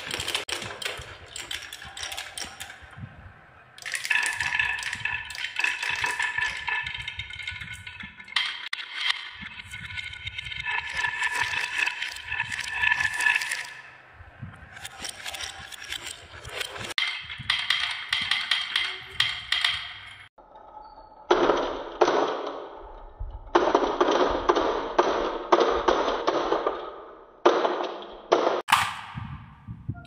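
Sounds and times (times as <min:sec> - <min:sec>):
marbles clattering on wooden track: 0:00.0 - 0:20.3.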